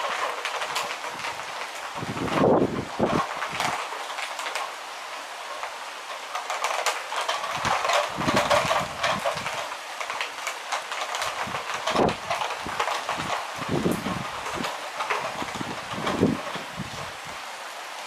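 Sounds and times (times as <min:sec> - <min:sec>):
wind gusts buffeting microphone: 0:00.0 - 0:03.9, 0:07.2 - 0:09.7, 0:11.2 - 0:17.6
rain falling: 0:00.0 - 0:18.0.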